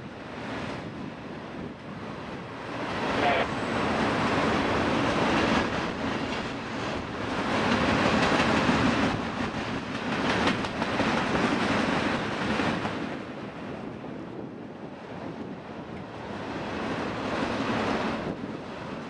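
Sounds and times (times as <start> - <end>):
train wheels clacking on rails: 2.8 - 13.2.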